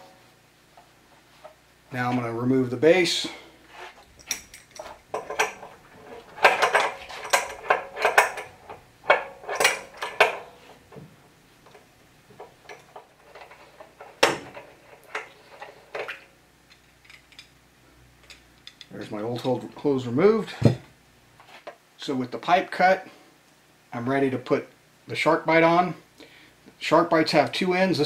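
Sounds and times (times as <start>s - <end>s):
metal clinks and scrapes: 3.9s - 10.9s.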